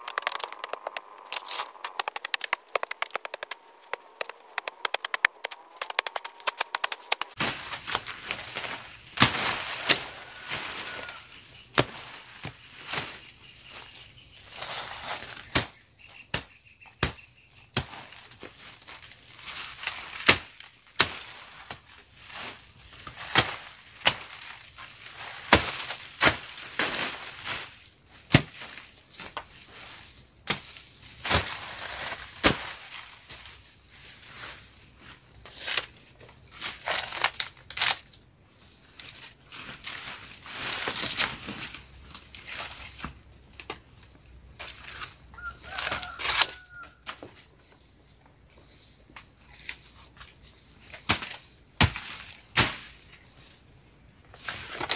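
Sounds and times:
high insect drone: 0.0s - 54.9s
machete chopping undergrowth: 1.4s - 11.0s, 11.7s - 13.2s, 15.1s - 18.6s, 19.8s - 24.5s, 25.4s - 27.4s, 28.3s - 29.4s, 30.4s - 33.4s, 45.7s - 47.3s, 50.9s - 53.0s.

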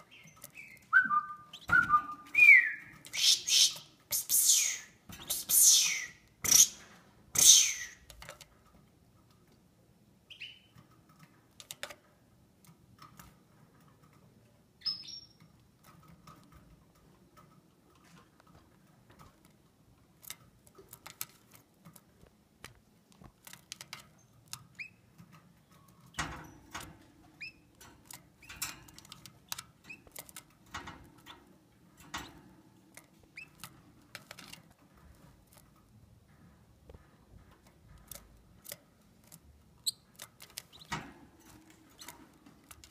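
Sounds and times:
canary chirps: 0.0s - 8.2s, 10.3s - 10.8s, 14.8s - 15.4s, 24.2s - 25.2s, 27.4s - 30.4s, 33.0s - 33.7s, 38.1s - 41.0s
light taps and rustles: 15.4s - 42.9s.

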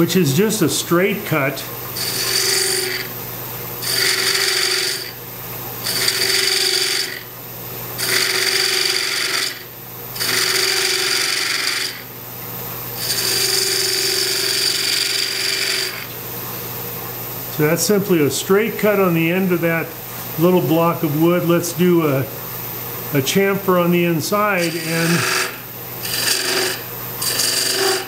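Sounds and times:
lathe humming: 0.0s - 5.2s, 5.8s - 7.3s, 8.0s - 12.1s, 13.0s - 16.2s, 17.5s - 28.0s
gouge cutting spinning wood: 2.0s - 3.1s, 3.8s - 5.2s, 5.8s - 7.3s, 8.0s - 12.0s, 13.0s - 16.1s, 24.3s - 28.0s.

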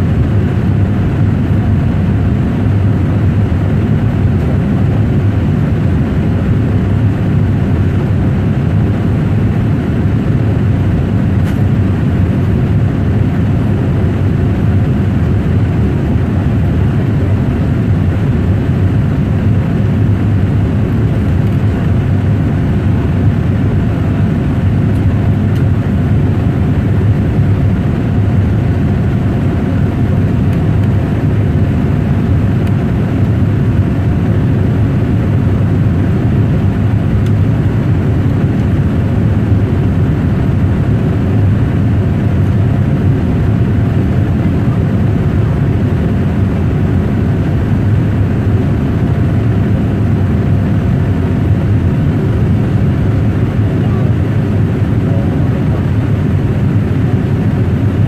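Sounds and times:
jet cabin engine rush: 0.0s - 58.0s.

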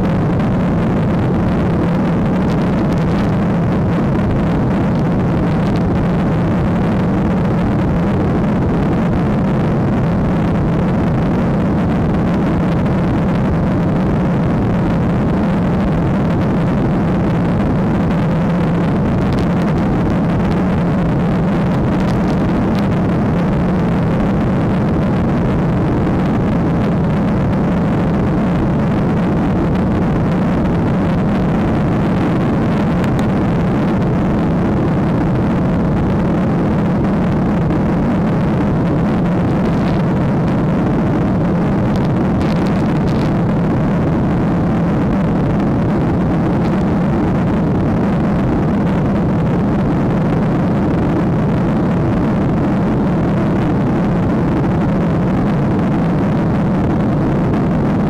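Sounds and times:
airliner cabin engine rush: 0.0s - 50.1s
low hum: 0.0s - 58.0s.

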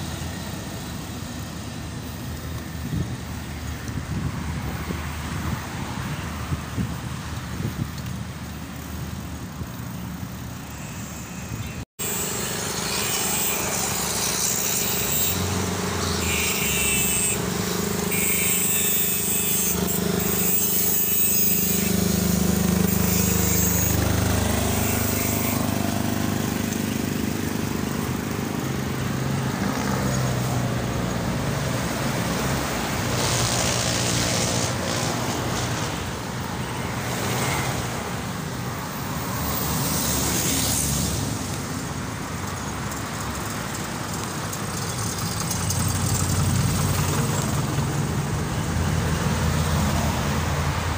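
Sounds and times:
motorcycle engine riding: 15.2s - 36.4s, 39.5s - 49.2s.

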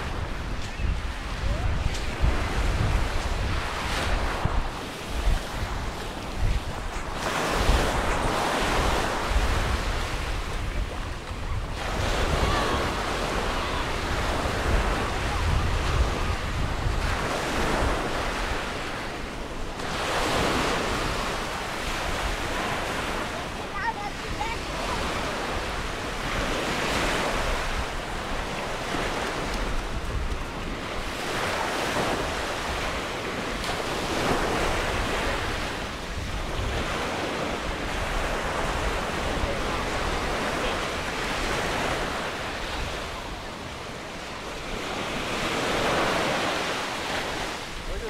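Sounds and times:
surf washing onto beach: 0.0s - 48.0s
wind rumbling on microphone: 0.0s - 48.0s.

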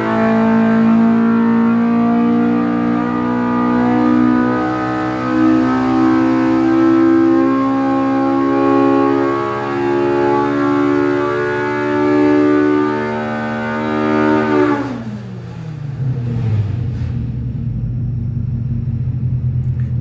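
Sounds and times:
engine revving at full throttle: 0.0s - 17.3s.

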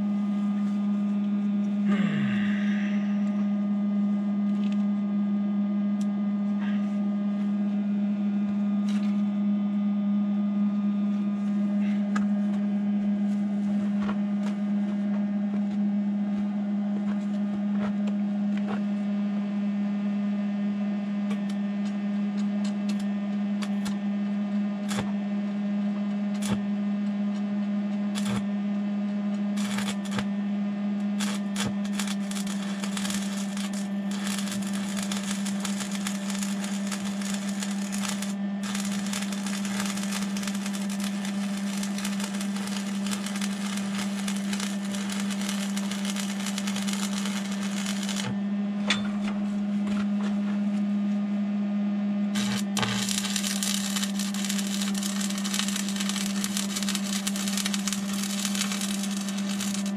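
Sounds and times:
steady hum: 0.0s - 59.9s
welding arc crackling: 24.9s - 25.1s, 28.2s - 28.4s, 29.6s - 30.3s, 31.2s - 48.4s, 52.4s - 59.9s.

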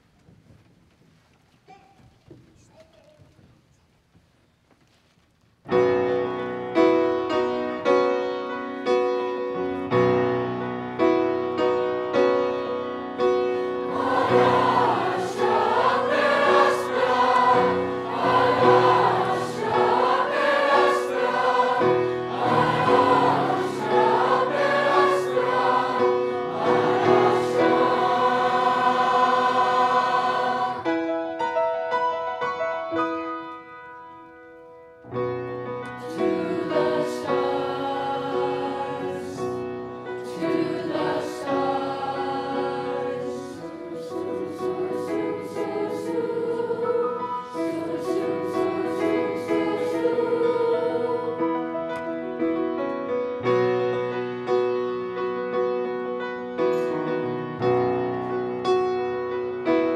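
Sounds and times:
grand piano playing: 5.7s - 59.9s
choir singing: 12.3s - 31.2s, 36.0s - 52.6s.

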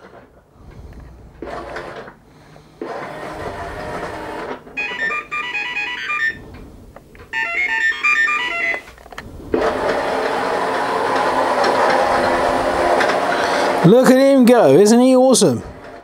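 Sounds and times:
toy robot drive motors: 2.8s - 5.0s
toy robot beeps: 4.8s - 6.4s, 7.4s - 8.9s.

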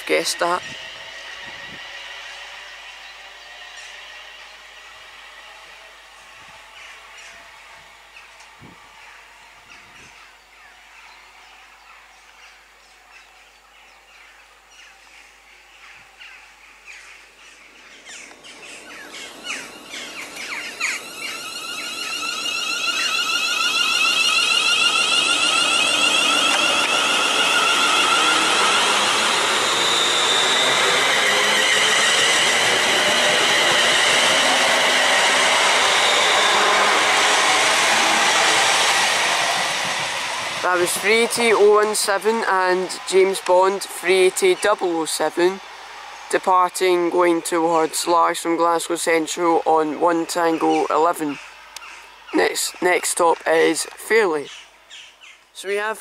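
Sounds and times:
train motor whine: 0.0s - 55.2s
electric train rushing past: 0.0s - 55.9s
wheels clicking over rails: 16.9s - 49.4s.

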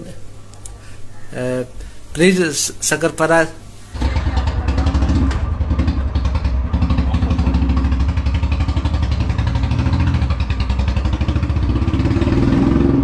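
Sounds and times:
single-cylinder motorcycle engine running: 3.9s - 13.0s.

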